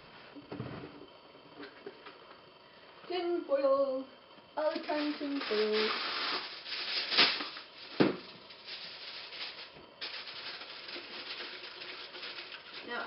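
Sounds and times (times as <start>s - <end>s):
foil crinkling: 4.6s - 13.0s
aluminium foil tearing: 4.7s - 13.0s.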